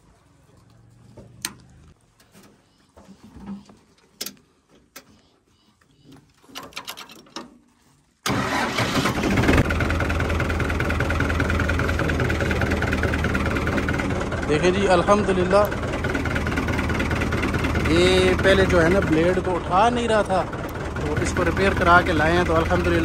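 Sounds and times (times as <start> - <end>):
tractor diesel engine running: 8.2 - 23.0.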